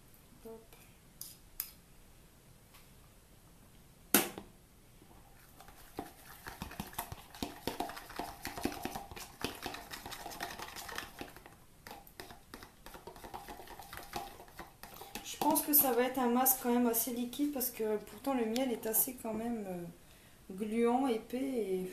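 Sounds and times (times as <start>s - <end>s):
fork stirring in a bowl: 5.4s - 16.6s.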